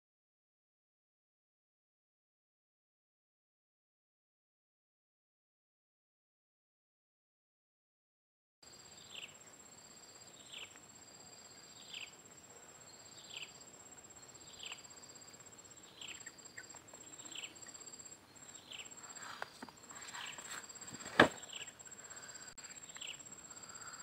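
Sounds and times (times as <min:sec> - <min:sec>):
insect trilling: 0:08.7 - 0:24.0
soft rustles and clicks: 0:19.1 - 0:21.5.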